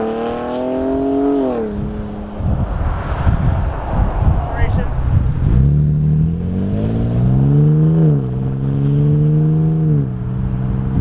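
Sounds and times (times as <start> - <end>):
engine revving through exhaust: 5.3 - 11.0.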